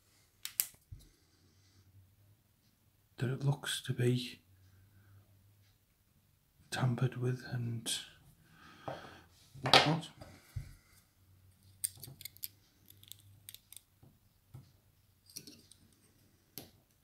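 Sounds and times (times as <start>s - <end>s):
lock pick clicking in a lock: 11.8s - 13.9s.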